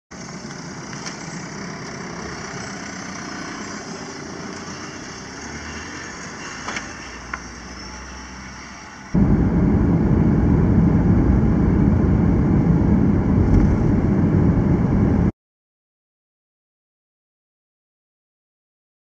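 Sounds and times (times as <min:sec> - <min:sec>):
van engine idling: 0:09.2 - 0:15.3.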